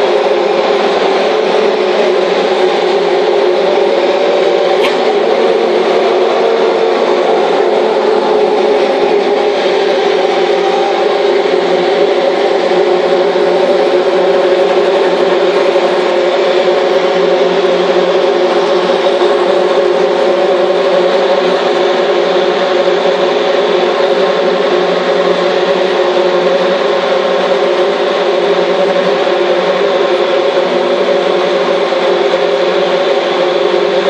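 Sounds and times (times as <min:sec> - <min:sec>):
race car engines idling: 0:00.0 - 0:34.0.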